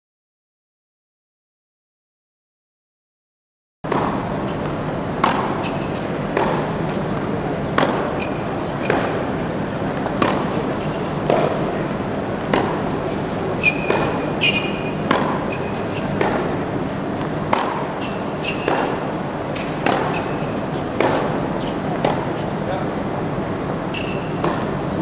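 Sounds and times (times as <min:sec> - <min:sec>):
tennis ball hits and bounces: 0:03.9 - 0:07.1, 0:07.7 - 0:22.4, 0:23.9 - 0:24.9
tennis shoes squeaking on court: 0:03.9 - 0:23.1, 0:23.8 - 0:25.0.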